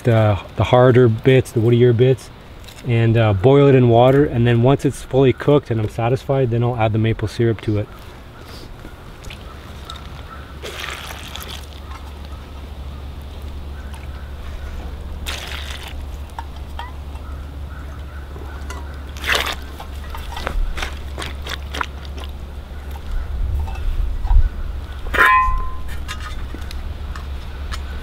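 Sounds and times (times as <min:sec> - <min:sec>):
water sloshing in a pot: 0:09.2 - 0:12.2, 0:15.2 - 0:17.2, 0:18.6 - 0:22.4
steady low rumble: 0:12.0 - 0:28.0.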